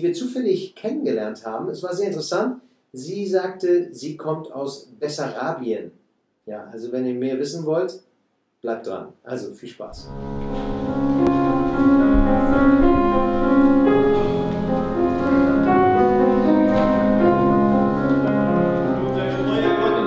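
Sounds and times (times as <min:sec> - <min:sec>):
piano accompaniment: 0:09.9 - 0:20.0
choir singing: 0:18.3 - 0:20.0.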